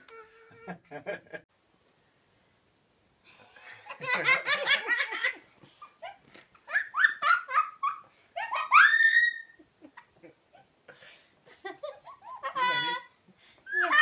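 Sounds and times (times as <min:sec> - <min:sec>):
high squeal of laughter: 0:06.7 - 0:09.7, 0:13.7 - 0:14.0
woman and girl laughing: 0:11.5 - 0:13.1.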